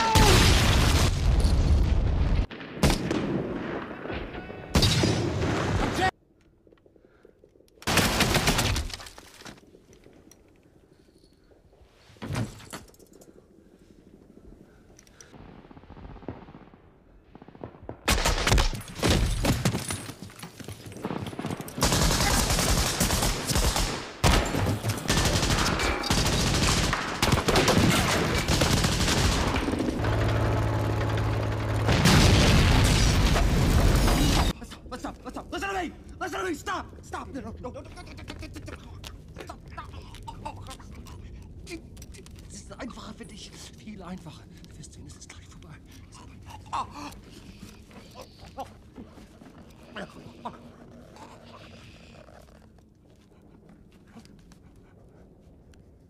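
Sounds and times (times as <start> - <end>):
rifle and machine-gun fire: 21.0 - 34.1.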